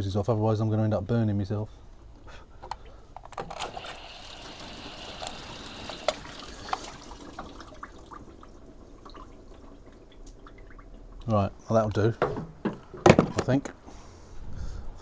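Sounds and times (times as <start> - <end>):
hose water splashing: 3.6 - 11.4.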